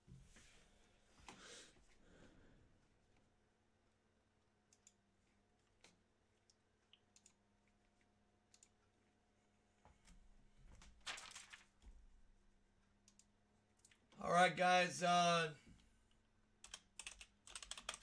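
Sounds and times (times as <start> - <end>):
faint clicks: 5.8 - 7.4, 8.5 - 8.8, 13.0 - 14.1.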